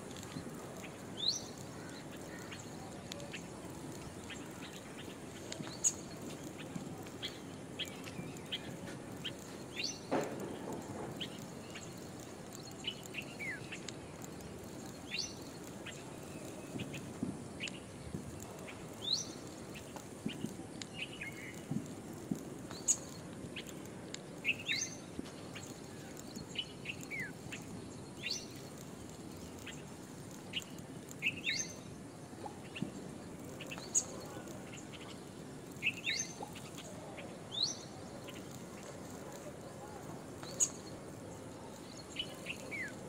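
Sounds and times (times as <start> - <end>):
faint ticks: 0.0 - 43.0.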